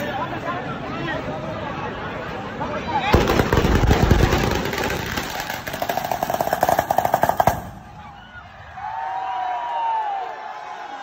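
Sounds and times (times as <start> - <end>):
fireworks crackling: 3.2 - 8.4.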